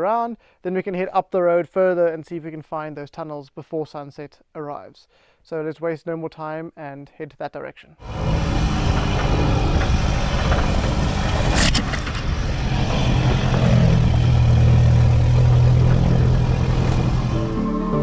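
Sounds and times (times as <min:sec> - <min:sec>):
road and tyre noise: 0:08.0 - 0:18.0
vehicle engine rumble: 0:08.0 - 0:18.0.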